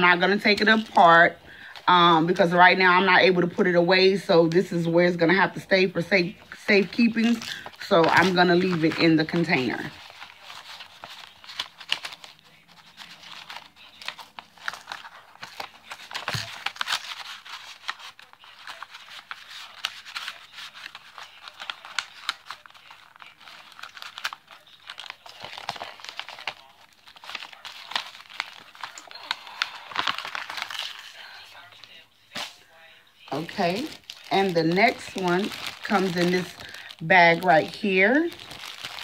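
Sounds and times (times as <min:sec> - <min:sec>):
packaging crinkling: 0:06.2 - 0:32.6, 0:33.2 - 0:39.0.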